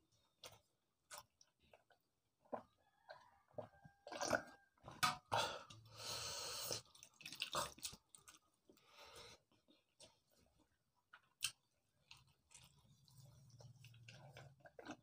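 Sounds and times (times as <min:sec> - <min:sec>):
chewing: 0:00.4 - 0:04.7, 0:06.7 - 0:08.8, 0:09.5 - 0:15.0
wet squishing of rice by hand: 0:06.8 - 0:15.0.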